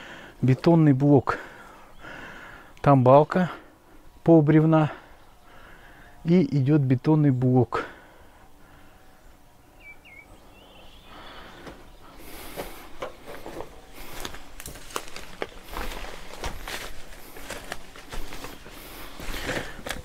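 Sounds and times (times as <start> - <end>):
brushing through weeds: 12.2 - 20.0
footsteps crunching on rubble: 12.4 - 20.0.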